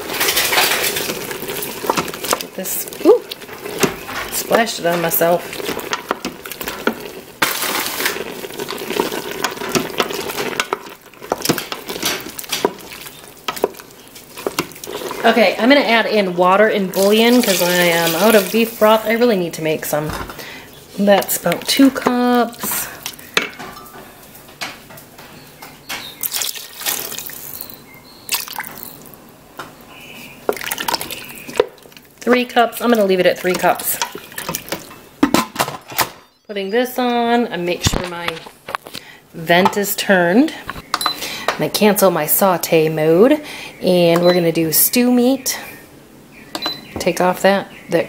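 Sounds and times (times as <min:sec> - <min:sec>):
wet stirring noise: 0:00.0 - 0:24.0, 0:26.0 - 0:29.2, 0:29.9 - 0:35.4
water pouring into stew: 0:00.2 - 0:15.2, 0:26.2 - 0:29.2, 0:30.5 - 0:32.2.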